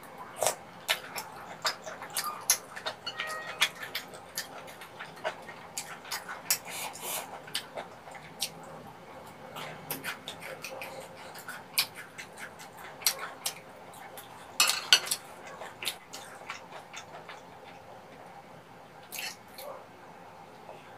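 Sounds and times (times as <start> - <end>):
chopsticks and spoon clicking on plates: 0.9 - 6.2, 14.6 - 15.2.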